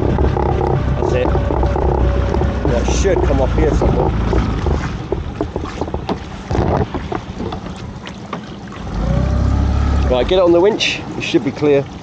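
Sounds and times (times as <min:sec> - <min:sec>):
sharp knocks: 0:00.0 - 0:07.7
boat engine running: 0:00.0 - 0:12.0
water splashing along hull: 0:00.0 - 0:12.0.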